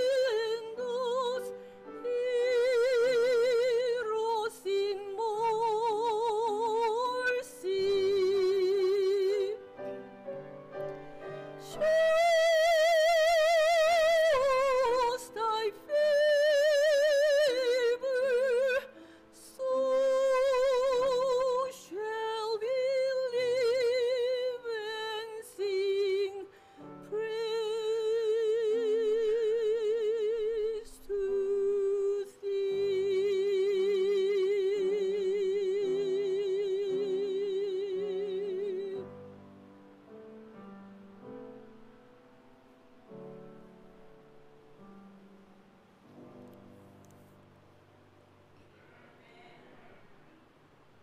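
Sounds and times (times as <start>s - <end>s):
woman singing with vibrato: 0.0s - 9.8s, 11.4s - 39.2s
soft instrumental accompaniment: 0.0s - 50.5s.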